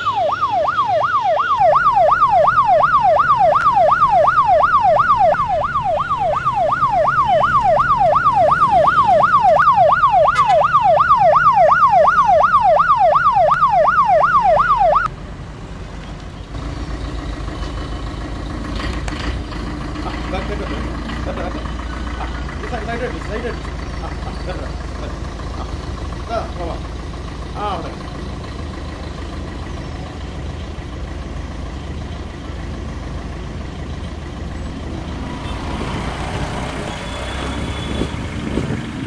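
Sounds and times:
ambulance siren wailing: 0:00.0 - 0:15.1
low engine rumble: 0:00.0 - 0:39.0.

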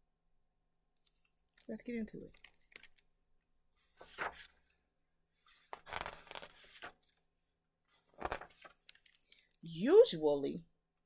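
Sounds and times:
book pages rustling: 0:01.0 - 0:03.1, 0:03.8 - 0:09.6.

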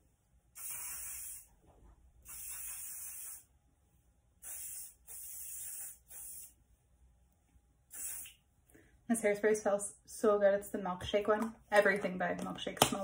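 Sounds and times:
hairspray hissing bursts: 0:00.6 - 0:01.5, 0:02.2 - 0:03.5, 0:04.4 - 0:06.6, 0:07.9 - 0:08.4.

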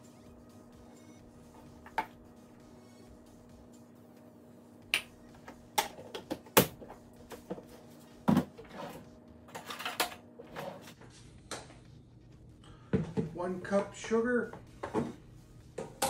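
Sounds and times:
scraping and rustling: 0:07.6 - 0:11.2.

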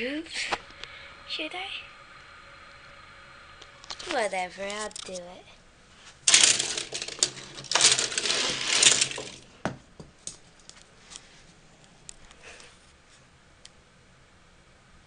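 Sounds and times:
toy cars clicking: 0:06.3 - 0:09.4
toy cars clattering together: 0:06.3 - 0:09.5.

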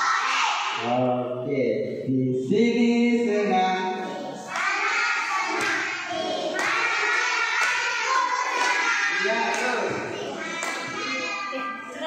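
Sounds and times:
children singing together: 0:00.0 - 0:00.8, 0:03.3 - 0:12.0
man singing over loudspeaker: 0:00.8 - 0:04.1.

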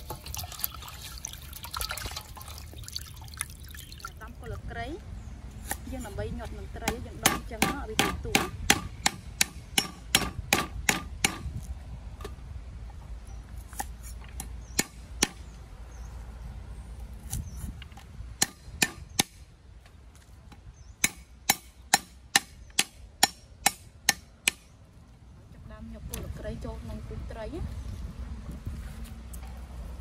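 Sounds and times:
cleaver chopping on wooden board: 0:06.8 - 0:11.4.

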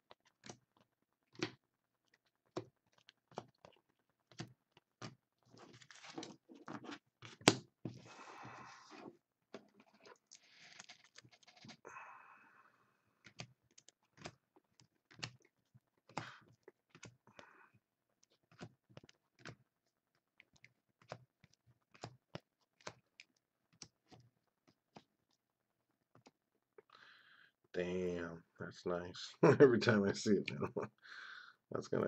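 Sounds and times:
faint small clicks and taps: 0:18.1 - 0:26.9.

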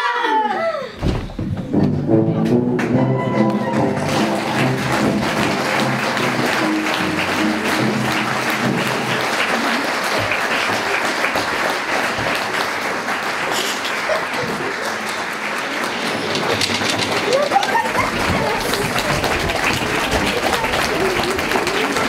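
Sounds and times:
music: 0:01.3 - 0:10.2
audience applauding: 0:02.8 - 0:22.0.

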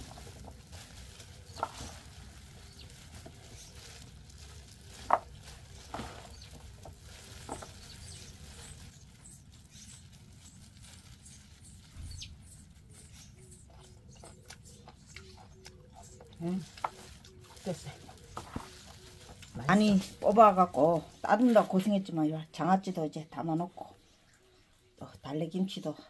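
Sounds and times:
wet rustling of stems and gloves: 0:00.0 - 0:22.4.

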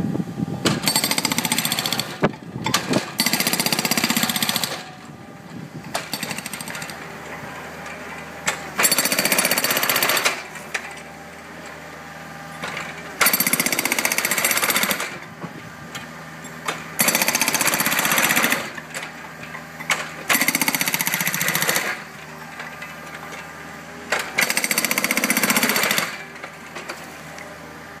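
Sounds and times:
excavator engine running: 0:00.1 - 0:28.0
hydraulic breaker hammering concrete: 0:00.6 - 0:05.0, 0:05.9 - 0:07.1, 0:07.8 - 0:11.1, 0:12.6 - 0:15.5, 0:16.6 - 0:23.3, 0:24.0 - 0:26.9.

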